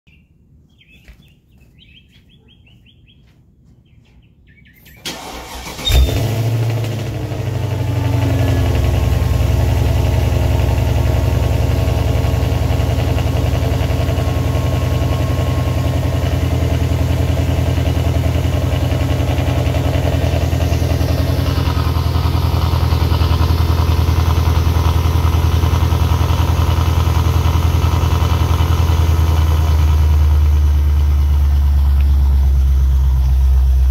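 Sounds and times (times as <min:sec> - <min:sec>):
birds chirping: 0:00.1 - 0:05.4
car engine deep idle: 0:05.2 - 0:33.9.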